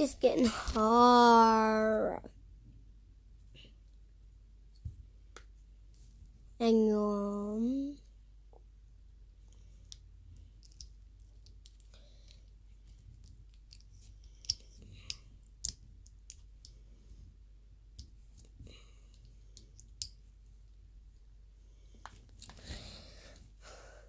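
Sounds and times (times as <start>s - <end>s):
plastic pieces clicking: 10.6s - 16.8s.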